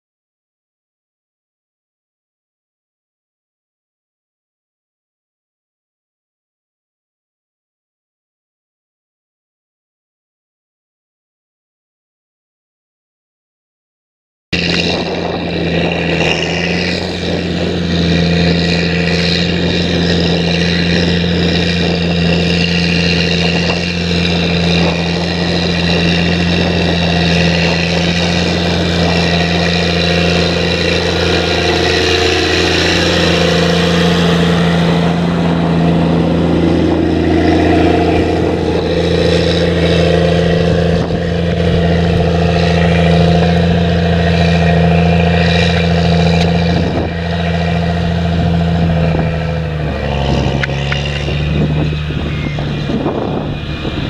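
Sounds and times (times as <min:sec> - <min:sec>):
tractor diesel engine droning: 0:14.6 - 0:54.0.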